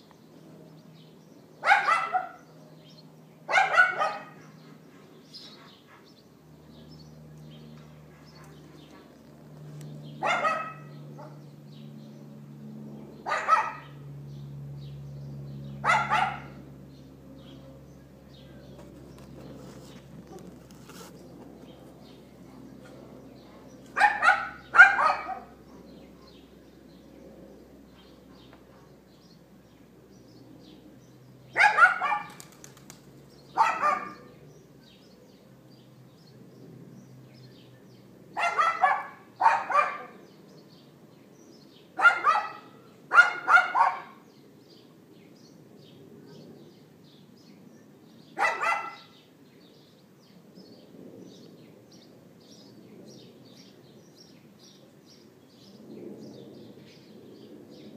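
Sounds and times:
small dog yapping: 0:01.6 - 0:02.4, 0:03.5 - 0:04.4, 0:10.2 - 0:11.4, 0:13.3 - 0:14.0, 0:15.8 - 0:16.6, 0:23.9 - 0:25.5, 0:31.6 - 0:32.5, 0:33.6 - 0:34.3, 0:38.4 - 0:40.2, 0:42.0 - 0:44.2, 0:48.4 - 0:49.2.

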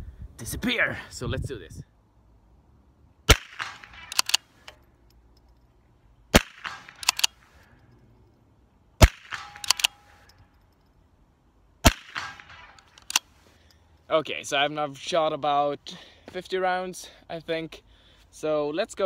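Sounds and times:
rifle shots: 0:03.3 - 0:04.5, 0:06.3 - 0:07.5, 0:09.0 - 0:10.2, 0:11.8 - 0:13.3
rifle bolt clicking: 0:03.6 - 0:05.6, 0:06.4 - 0:07.4, 0:09.0 - 0:10.8, 0:12.2 - 0:13.3.

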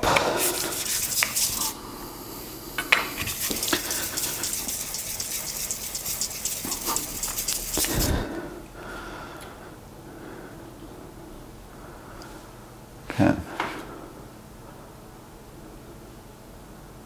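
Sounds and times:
blade scratching on wet sandpaper: 0:00.3 - 0:01.8, 0:03.2 - 0:08.2.

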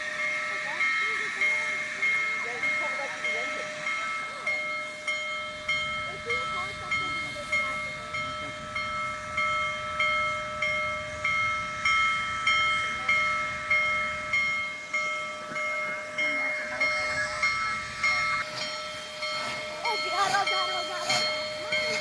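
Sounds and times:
railway warning bell ringing: 0:00.0 - 0:22.0.

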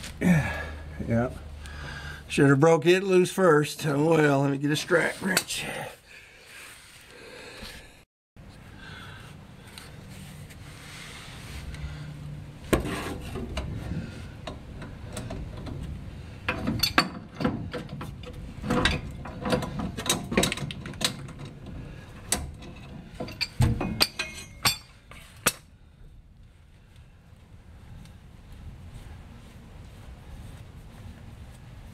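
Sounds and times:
pipe wrench clanking on metal fitting: 0:16.5 - 0:21.6, 0:22.2 - 0:25.6.

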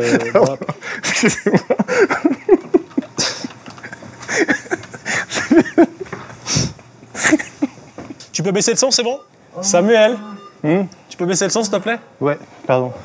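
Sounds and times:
heavy breathing: 0:04.2 - 0:05.5, 0:06.4 - 0:07.3.

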